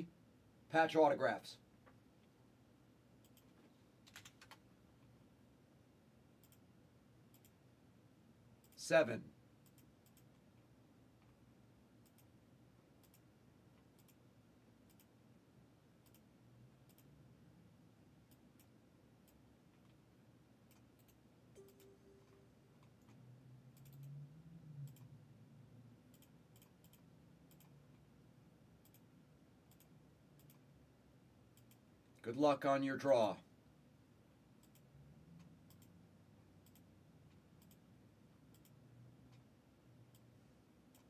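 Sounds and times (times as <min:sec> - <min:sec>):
computer mouse clicks: 0:03.2 - 0:04.6, 0:06.4 - 0:06.7, 0:07.3 - 0:07.6, 0:08.6 - 0:08.8, 0:09.6 - 0:10.5, 0:12.0 - 0:12.4, 0:13.0 - 0:14.2, 0:14.8 - 0:15.2, 0:16.0 - 0:17.2, 0:18.3 - 0:20.0, 0:20.6 - 0:21.9, 0:22.8 - 0:25.2, 0:26.0 - 0:28.0, 0:28.8 - 0:30.7, 0:31.5 - 0:31.9, 0:34.6 - 0:36.0, 0:36.6 - 0:37.9, 0:38.5 - 0:39.5, 0:40.1 - 0:40.3.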